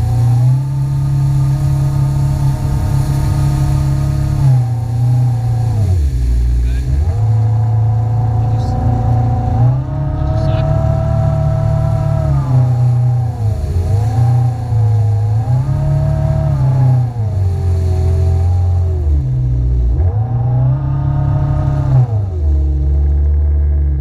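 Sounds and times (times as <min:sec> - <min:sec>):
jet ski engine running: 0:00.0 - 0:24.0.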